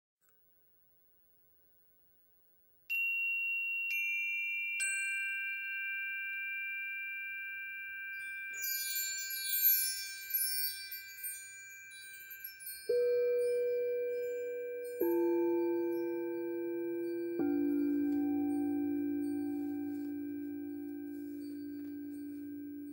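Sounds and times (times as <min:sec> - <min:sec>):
high tinkling chime notes: 0:02.9 - 0:22.9
metal chime bars ringing: 0:02.9 - 0:22.9
singing bowl struck: 0:12.9 - 0:22.9.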